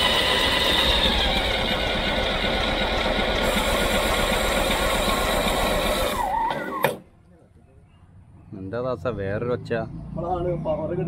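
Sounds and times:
starter motor cranking diesel engine: 0.0s - 7.0s.

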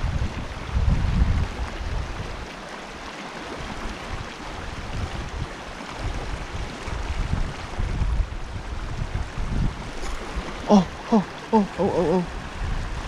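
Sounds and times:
wind buffeting microphone: 0.0s - 2.5s, 3.6s - 13.0s
stream rushing over rapids: 0.0s - 13.0s.

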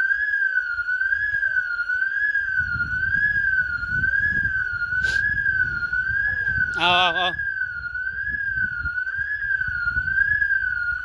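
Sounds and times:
electronic alarm siren warbling: 0.0s - 11.0s
low rumble: 2.6s - 10.9s.

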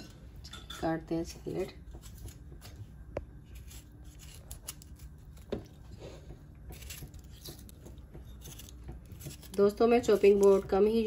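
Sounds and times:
low background hum: 0.0s - 11.0s
knife cutting vegetables: 3.5s - 10.9s.

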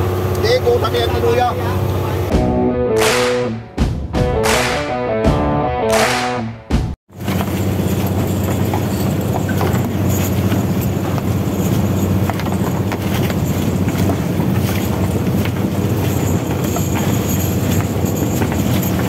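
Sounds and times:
boat engine humming: 0.0s - 2.6s, 7.1s - 19.0s.

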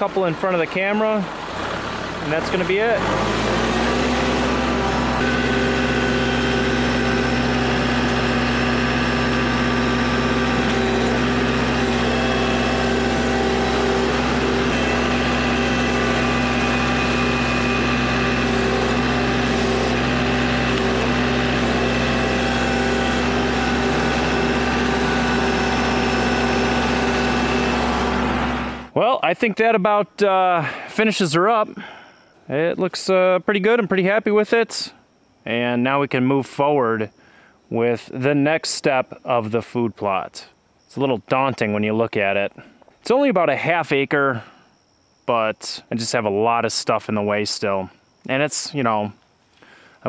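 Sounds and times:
tractor diesel engine running: 0.0s - 29.4s.

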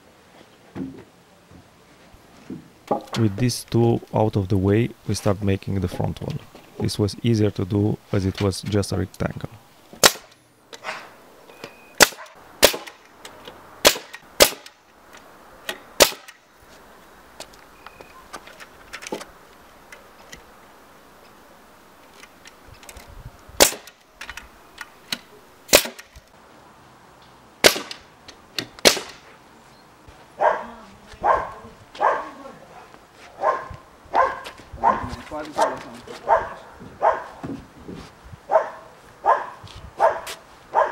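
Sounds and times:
nail gun shots: 10.0s - 11.0s, 12.0s - 13.0s, 13.8s - 14.8s, 16.0s - 16.4s, 23.6s - 24.0s, 25.1s - 26.2s, 27.6s - 28.0s, 28.6s - 29.2s
dog barking: 30.4s - 37.4s, 38.5s - 40.9s.

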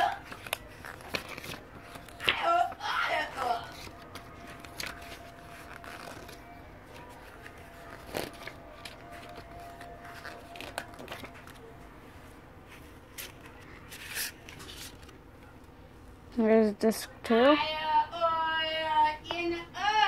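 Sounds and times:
paper pages turning and rubbing: 0.0s - 11.7s, 12.6s - 15.2s.

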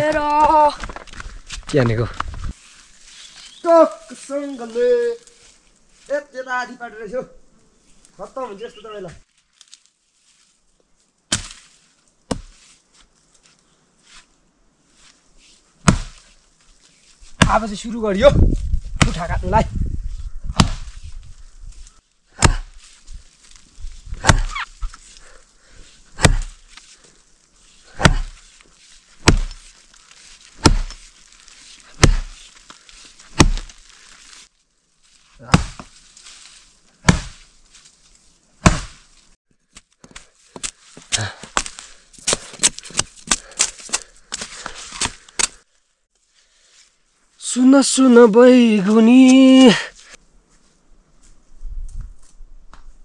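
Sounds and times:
wood cracking: 0.0s - 2.5s, 27.9s - 34.5s, 39.8s - 45.7s
axe chopping wood: 11.3s - 11.7s, 12.3s - 12.6s, 15.8s - 16.2s, 17.4s - 17.7s, 19.0s - 19.3s, 20.5s - 21.0s, 22.4s - 22.8s, 24.2s - 24.7s, 26.2s - 26.6s, 27.9s - 28.4s, 29.2s - 29.7s, 30.5s - 31.1s, 31.9s - 32.4s, 33.3s - 33.9s, 35.4s - 36.0s, 37.0s - 37.5s, 38.6s - 39.1s, 40.0s - 45.6s.

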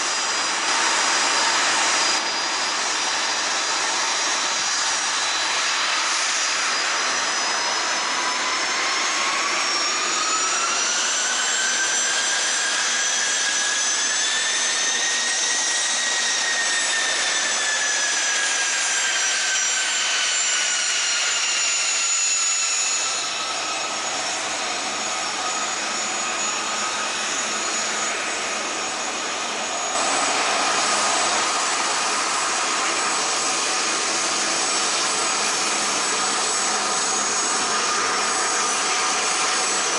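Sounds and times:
high engine whine: 0.0s - 39.9s
jet engines roaring on ground: 0.0s - 39.9s.

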